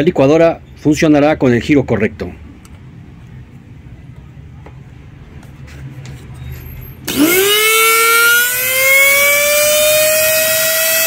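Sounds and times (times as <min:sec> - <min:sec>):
blender motor high-pitched whine: 0:07.1 - 0:11.0.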